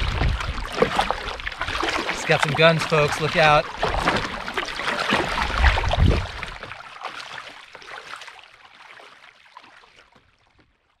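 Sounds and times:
paddle splashing in water: 0.0s - 11.0s.

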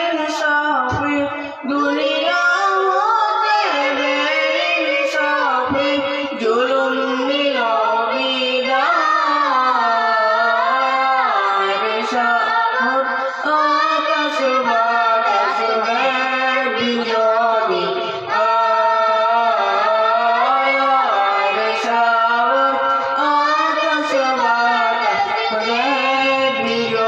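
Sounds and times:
boy and girl singing: 0.0s - 27.0s.

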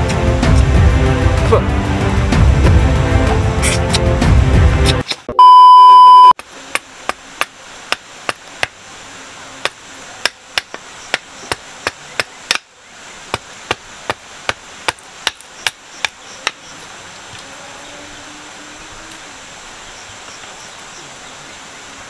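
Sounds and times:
test-tone beep: 5.3s - 6.4s.

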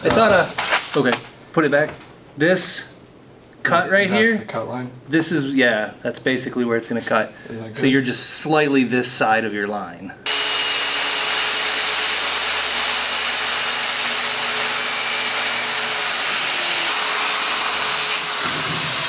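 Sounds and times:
circular saw motor whine: 10.3s - 19.0s
saw cutting plywood: 10.3s - 19.0s.

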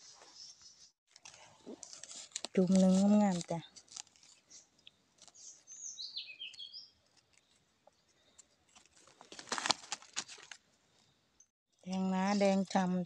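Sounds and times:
rustling and scraping in dry leaves: 1.1s - 5.7s, 8.7s - 10.6s.

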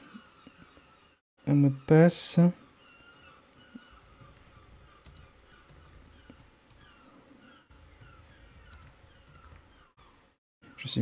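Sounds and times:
computer keyboard typing: 3.9s - 7.0s, 7.7s - 9.9s.

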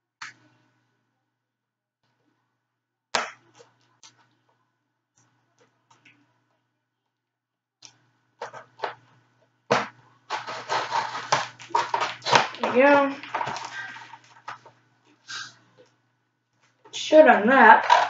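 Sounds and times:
packaging rustling: 9.7s - 14.8s.

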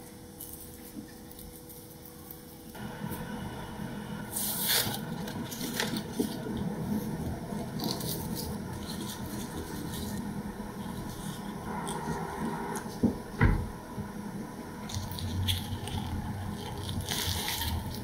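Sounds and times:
crackly rustle: 14.8s - 18.0s.

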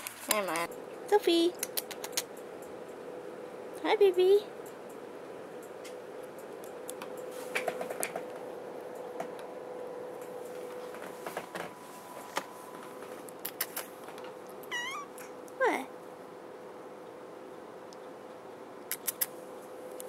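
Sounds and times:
faint steady hum: 0.0s - 20.0s
cat meowing: 14.7s - 15.3s.

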